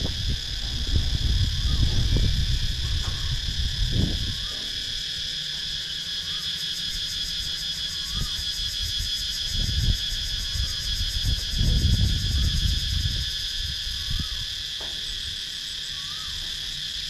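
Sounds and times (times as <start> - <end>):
low rumbles: 0.0 - 5.9
cicadas buzzing: 0.0 - 17.0.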